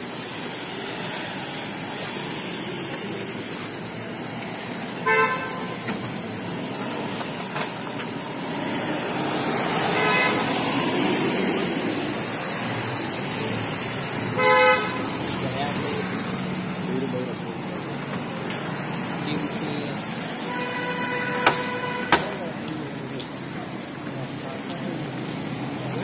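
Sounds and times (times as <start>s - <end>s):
vehicles driving past: 0.0s - 26.0s
car horns honking: 5.0s - 6.2s, 9.8s - 10.9s, 14.2s - 15.4s, 20.4s - 22.6s.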